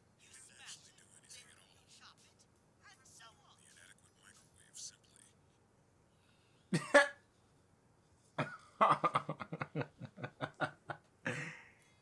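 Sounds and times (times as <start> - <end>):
man laughing in rhythmic bursts: 6.7 - 7.2, 8.4 - 11.7.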